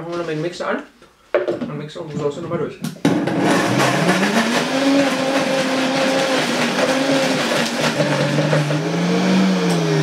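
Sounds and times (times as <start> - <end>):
blender motor running: 3.2 - 10.0.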